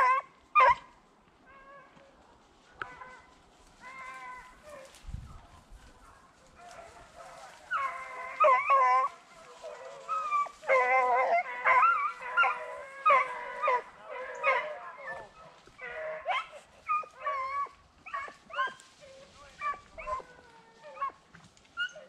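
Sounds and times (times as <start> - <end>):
dogs baying and yelping: 0.0 - 2.1, 2.7 - 5.0, 6.0 - 22.0.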